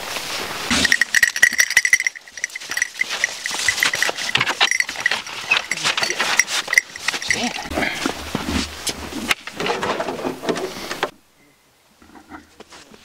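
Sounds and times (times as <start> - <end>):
small bell ringing: 0.7 - 7.7
dog collar jingling: 0.7 - 8.1.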